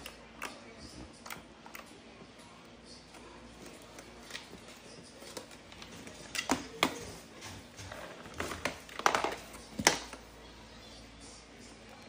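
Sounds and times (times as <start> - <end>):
plastic parts clicking and knocking: 8.3 - 10.2.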